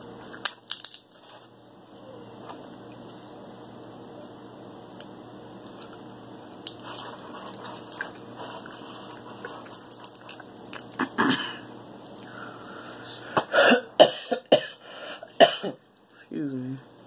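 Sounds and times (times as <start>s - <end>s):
crab shell cracking: 0.2s - 1.3s, 9.6s - 11.0s
loud cough: 11.0s - 11.6s, 13.5s - 14.8s, 15.4s - 15.8s.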